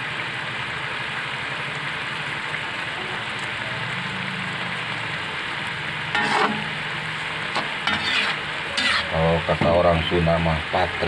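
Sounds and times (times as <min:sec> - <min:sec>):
food sizzling in a wok: 0:00.0 - 0:11.0
metal spatula scraping a pan: 0:06.1 - 0:09.7.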